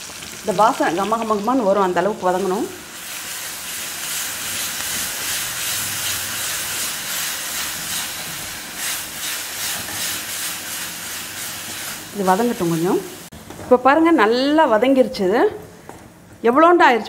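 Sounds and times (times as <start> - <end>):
paste sizzling in oil: 0.0 - 13.3.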